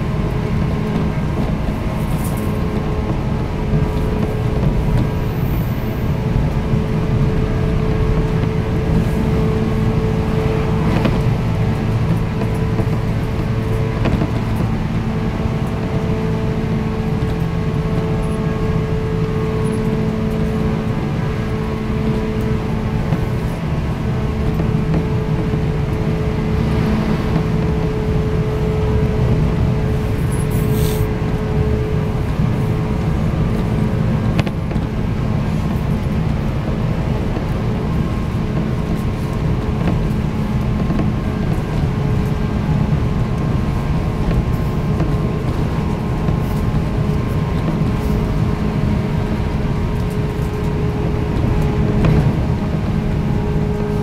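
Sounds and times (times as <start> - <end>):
traction motors humming: 0.0 - 54.0
train wheels rumbling on rails: 0.0 - 54.0.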